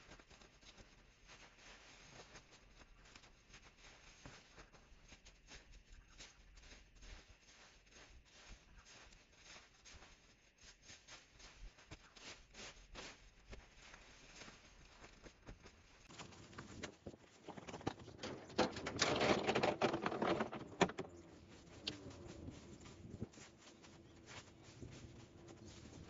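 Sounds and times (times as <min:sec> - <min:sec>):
leafy branches rustling: 0:16.1 - 0:26.0
rake scraping through clippings: 0:16.1 - 0:26.0.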